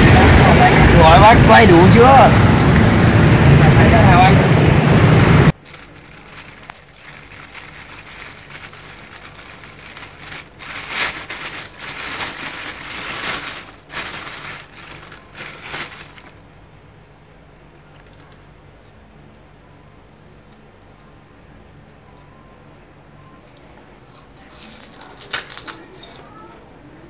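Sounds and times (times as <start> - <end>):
plastic bag crinkling: 5.6 - 16.6, 24.6 - 25.8.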